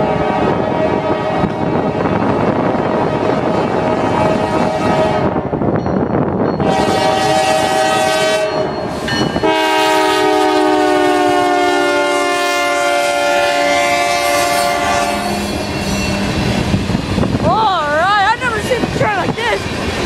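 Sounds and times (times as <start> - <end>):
train rumble: 0.0 - 20.0
wind noise: 0.0 - 20.0
locomotive air horn: 3.6 - 5.5, 6.6 - 8.7, 9.4 - 16.3.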